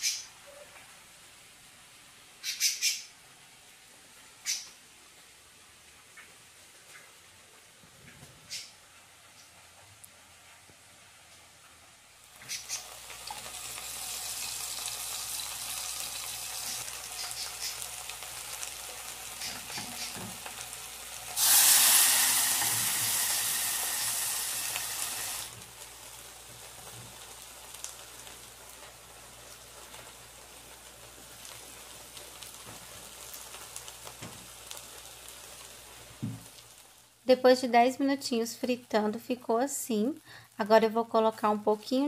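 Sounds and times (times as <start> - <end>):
beans sizzling in hot fat: 10.9 - 42.0
lard sizzling in a hot pan: 12.2 - 42.0.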